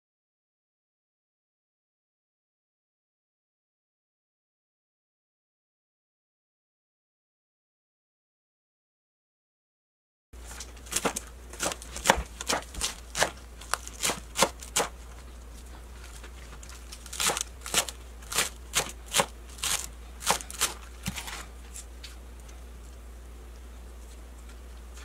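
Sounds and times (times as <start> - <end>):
knife chopping on wooden board: 10.9 - 15.0, 17.1 - 21.4.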